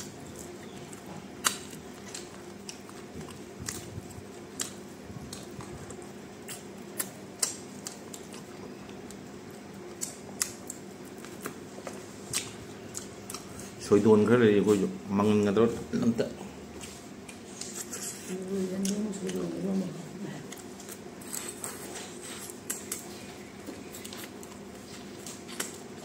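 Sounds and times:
person chewing crunchy food: 0.0s - 13.8s, 20.4s - 26.0s
faint steady hum: 0.0s - 26.0s.

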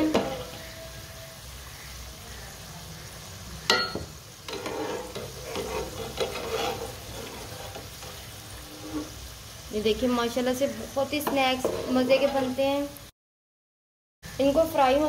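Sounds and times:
spatula clanking on pan: 0.0s - 0.7s, 3.6s - 8.2s, 11.2s - 12.6s
spatula stirring in oil: 0.0s - 0.8s, 3.9s - 12.9s
food sizzling in hot oil: 0.0s - 13.2s, 14.2s - 15.0s.

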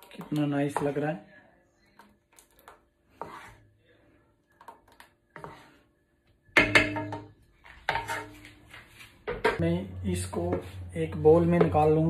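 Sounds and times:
spatula stirring thick custard: 0.0s - 6.1s
wood knocking and scraping pan: 6.6s - 9.6s.

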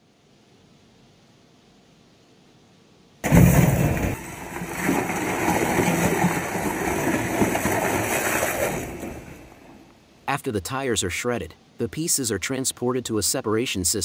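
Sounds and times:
faint hiss: 0.0s - 3.8s, 9.4s - 14.0s
tire shredding machinery running: 3.2s - 9.9s.

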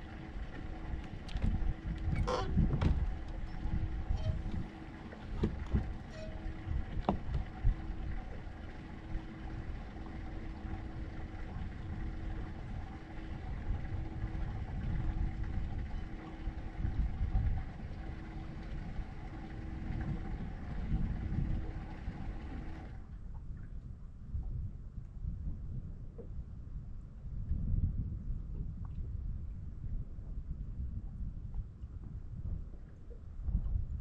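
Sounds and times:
outboard motor running: 0.0s - 23.3s
wind gusting on microphone: 0.0s - 34.0s.

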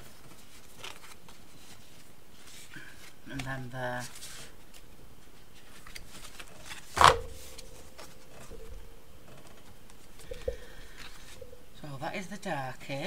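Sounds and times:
paper rustles and taps: 0.0s - 2.6s.

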